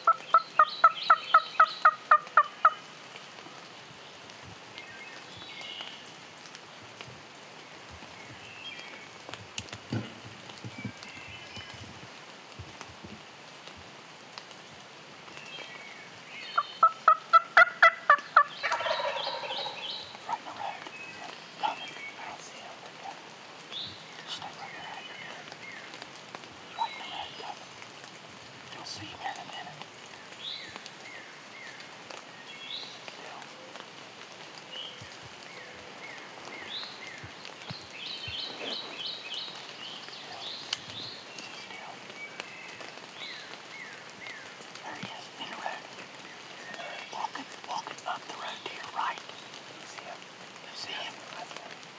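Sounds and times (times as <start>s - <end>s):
turkey gobbling: 0.0s - 2.8s, 16.8s - 20.4s
faint steady hiss: 0.0s - 51.9s.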